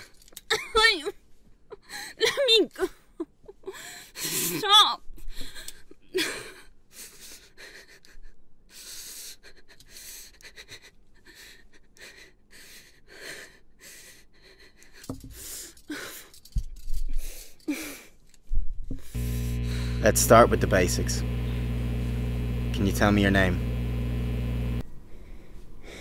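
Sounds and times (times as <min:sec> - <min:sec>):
woman sobbing: 0:00.5 - 0:08.3
woman crying with gasping breaths: 0:01.7 - 0:16.5, 0:17.2 - 0:18.2.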